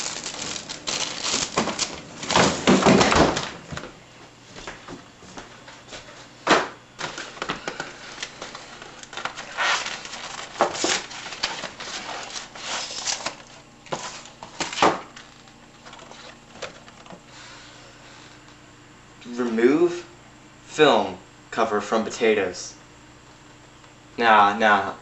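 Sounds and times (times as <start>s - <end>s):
cardboard and plastic crackling: 0.0s - 4.0s, 7.0s - 17.3s.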